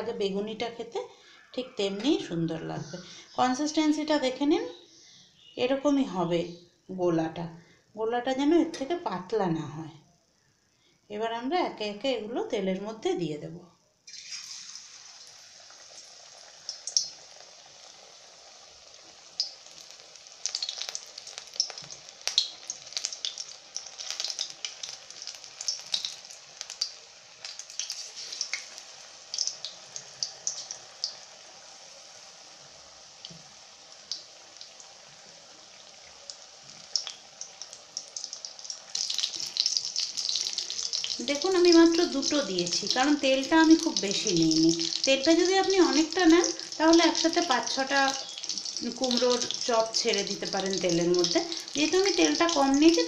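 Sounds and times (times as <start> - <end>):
food deep-frying in hot oil: 14.0 - 53.0.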